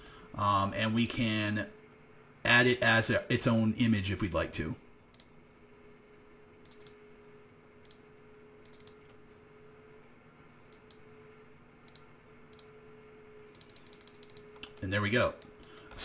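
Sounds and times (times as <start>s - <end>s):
faint steady hum: 0.0s - 16.0s
computer mouse clicks: 5.1s - 5.4s, 6.6s - 7.0s, 7.8s - 9.2s, 10.6s - 11.1s, 11.8s - 12.7s, 13.5s - 16.0s.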